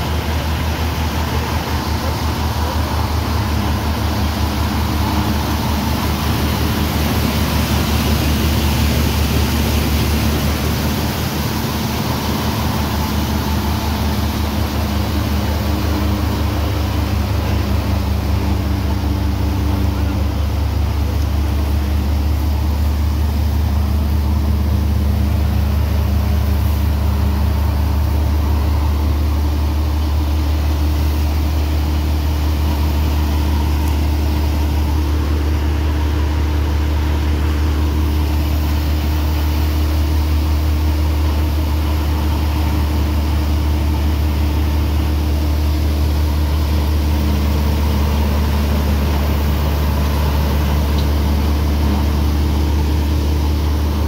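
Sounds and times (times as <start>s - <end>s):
thresher machine drone: 0.0s - 54.0s.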